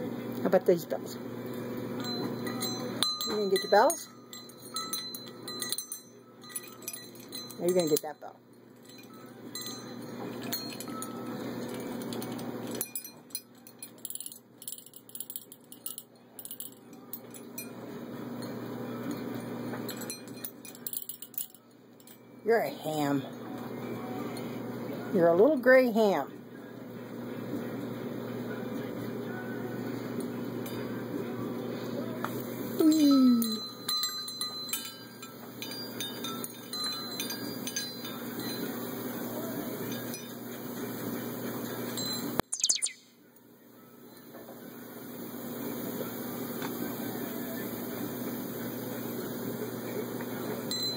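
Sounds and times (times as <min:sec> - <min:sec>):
small bells jingling: 0:02.0 - 0:12.0.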